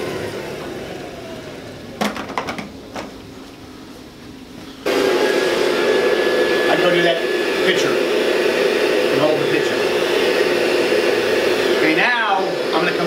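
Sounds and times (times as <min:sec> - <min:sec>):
vacuum cleaner motor whine: 0:00.0 - 0:02.0, 0:04.8 - 0:13.0.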